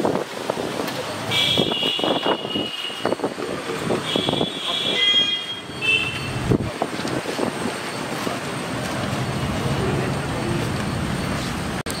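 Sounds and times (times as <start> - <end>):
roadside traffic noise: 0.0 - 12.0.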